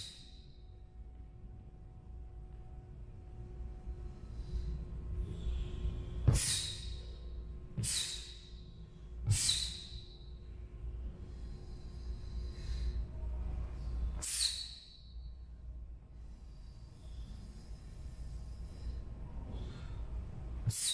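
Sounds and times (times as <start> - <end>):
faint breaths: 3.5 - 6.2, 10.0 - 20.6.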